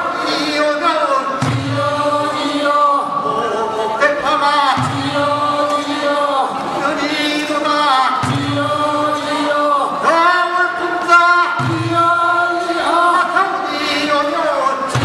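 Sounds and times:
men singing in chorus: 0.0s - 15.0s.

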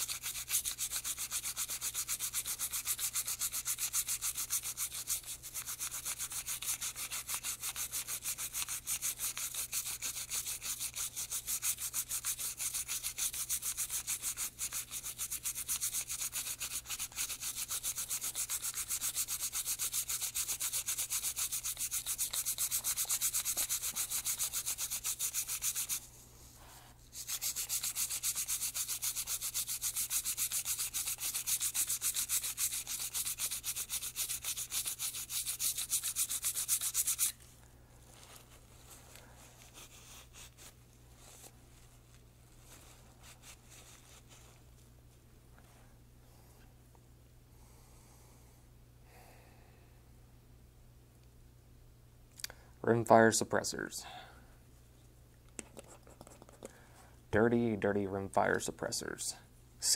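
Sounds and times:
toothbrush scrubbing metal: 0.0s - 26.1s, 27.1s - 37.4s.

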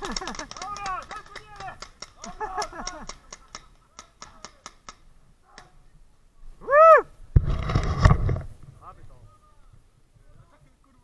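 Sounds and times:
paintball and airsoft guns firing: 0.0s - 5.7s
person shouting: 6.6s - 7.1s.

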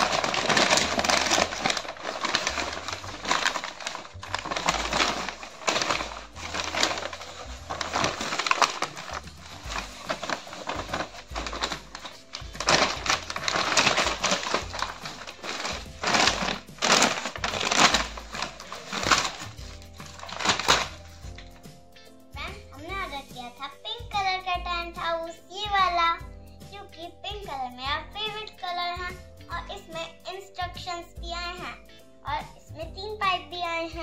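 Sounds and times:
paper bag crinkling: 0.0s - 21.6s
plastic packaging rustling: 0.0s - 21.6s.

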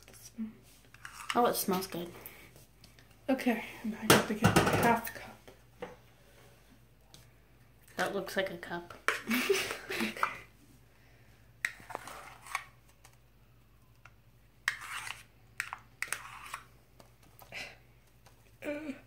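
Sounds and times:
plastic spoon scraping cup: 0.9s - 1.6s, 11.6s - 12.7s, 14.6s - 16.7s.

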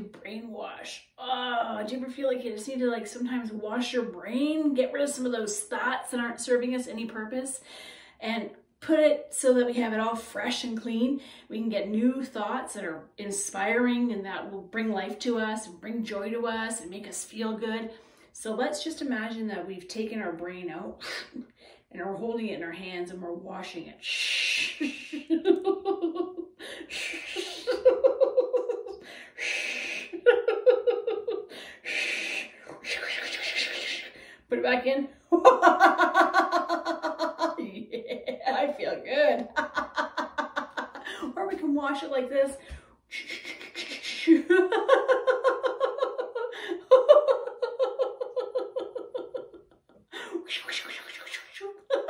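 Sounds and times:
woman laughing in rhythmic bursts: 24.8s - 33.8s, 35.3s - 41.6s, 43.2s - 50.4s, 51.6s - 52.0s.

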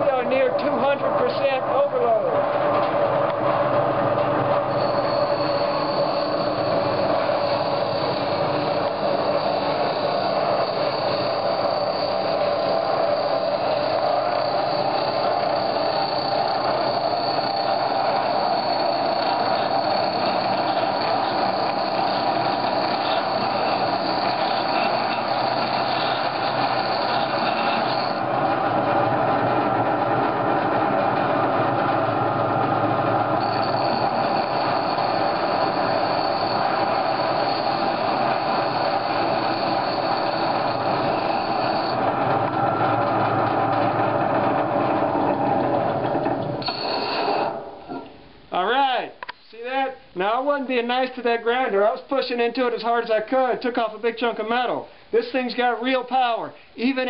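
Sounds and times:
high whine: 0.0s - 57.0s
bench grinder grinding metal: 4.7s - 28.2s, 33.4s - 43.8s.

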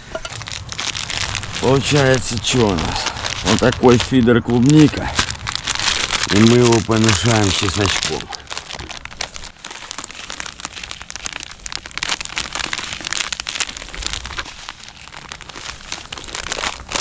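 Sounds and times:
plastic packet crinkling: 0.0s - 17.0s.

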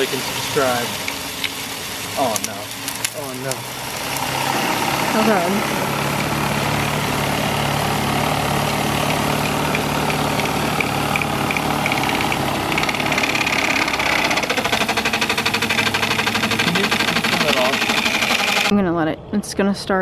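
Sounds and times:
water jet spray hiss: 0.0s - 18.7s
turbine low hum: 0.0s - 19.6s
fast even pulsing: 3.2s - 18.9s.

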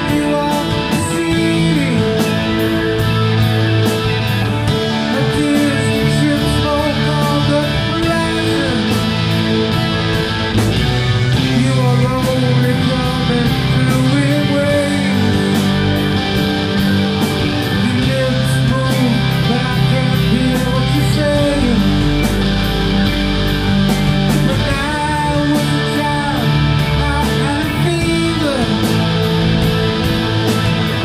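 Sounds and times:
man singing into a microphone: 0.0s - 2.7s, 5.1s - 9.2s, 11.4s - 16.0s, 17.7s - 22.2s, 24.4s - 29.0s
live rock band playing: 0.0s - 31.0s.

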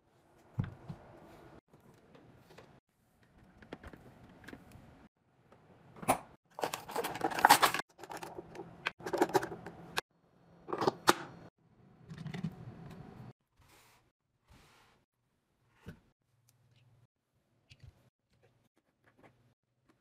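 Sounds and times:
household items handled: 6.0s - 10.0s.

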